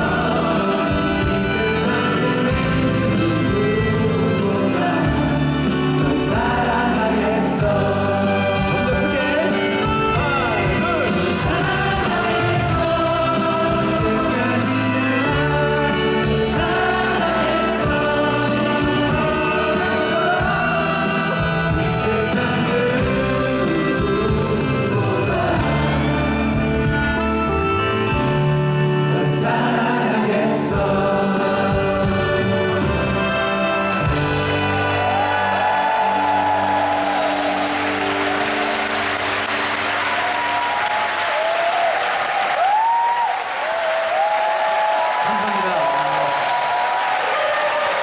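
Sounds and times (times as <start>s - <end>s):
men singing together: 0.0s - 26.9s, 29.0s - 33.8s
live band accompaniment: 0.0s - 48.0s.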